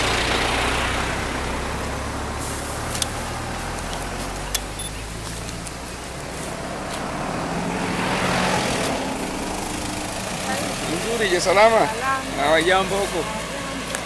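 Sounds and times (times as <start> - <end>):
vehicle engine idling: 0.0 - 14.0
sharp clicks: 3.8 - 5.8.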